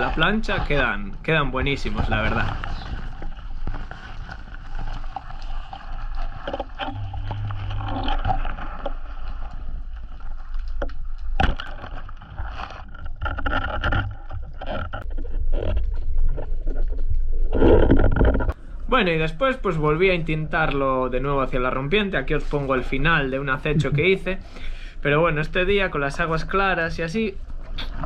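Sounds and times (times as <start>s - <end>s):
muffled underwater rumble: 0.0s - 13.4s, 14.1s - 24.9s.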